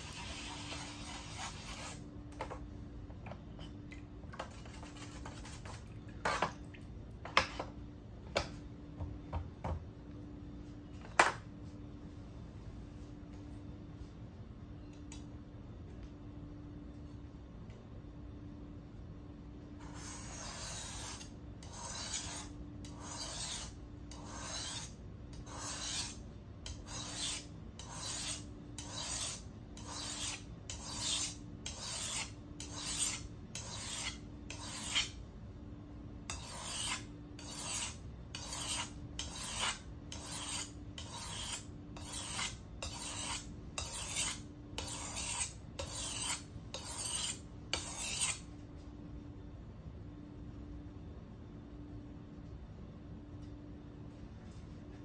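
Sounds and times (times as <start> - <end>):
knife scraping on whetstone: 0.0 - 2.1, 4.4 - 6.5, 19.8 - 35.2, 36.3 - 48.5.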